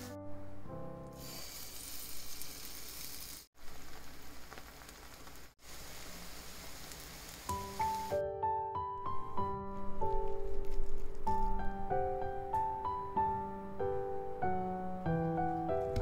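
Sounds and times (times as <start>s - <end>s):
batter sizzling in hot oil: 1.2s - 8.2s.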